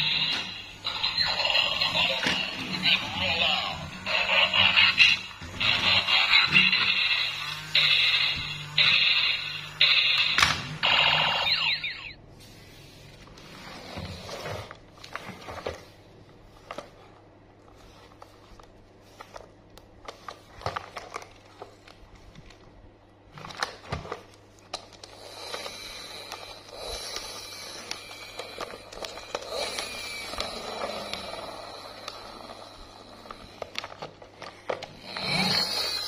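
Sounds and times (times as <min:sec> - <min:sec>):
plastic rustling and rubbing: 0:12.4 - 0:32.6, 0:33.2 - 0:36.0.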